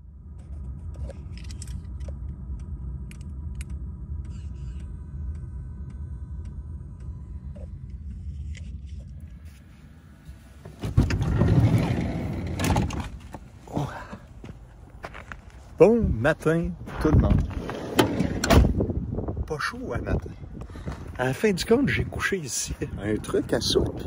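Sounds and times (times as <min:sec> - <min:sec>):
low rumble: 0:00.0 - 0:24.0
wind buffeting microphone: 0:15.7 - 0:24.0.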